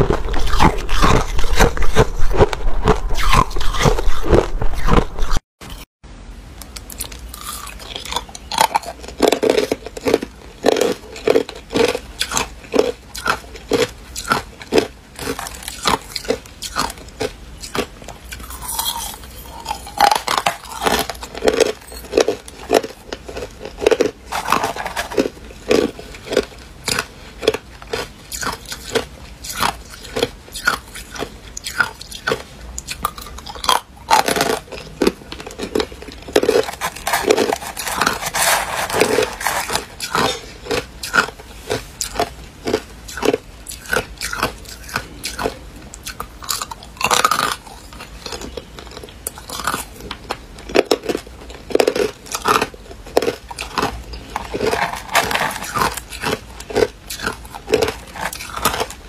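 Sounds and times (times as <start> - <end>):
ice being crunched: 0.0 - 5.4, 18.5 - 27.0, 33.6 - 41.2, 53.2 - 59.0.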